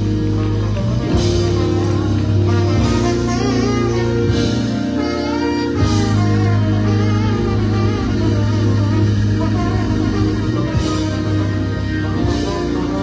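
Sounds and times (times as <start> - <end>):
tambourine shaking: 0.0 - 3.2
live band playing: 0.0 - 13.0
trombone melody: 0.0 - 13.0.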